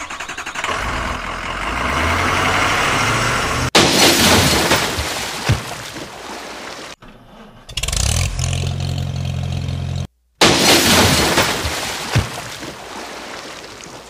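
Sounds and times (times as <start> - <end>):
toy splashing into water: 3.8 - 7.0, 10.4 - 14.0.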